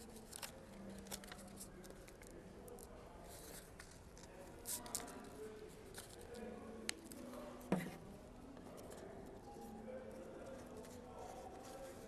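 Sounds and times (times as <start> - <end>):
soft paper ticks: 0.0 - 5.2
paper rustle: 0.0 - 6.5, 10.4 - 12.0.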